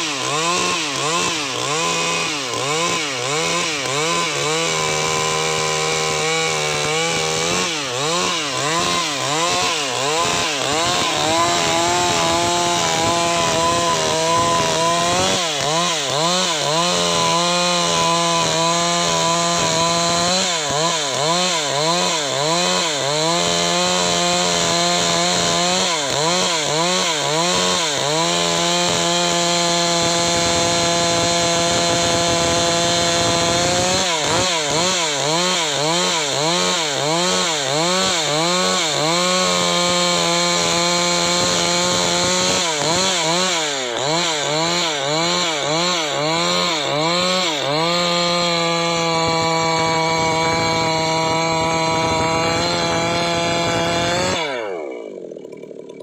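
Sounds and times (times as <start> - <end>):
chainsaw cutting wood: 0.0 - 56.0.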